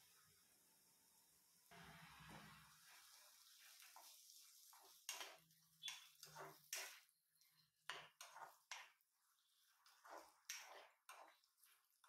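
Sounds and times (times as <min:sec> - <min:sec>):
spatula scraping pan: 0:03.6 - 0:12.0.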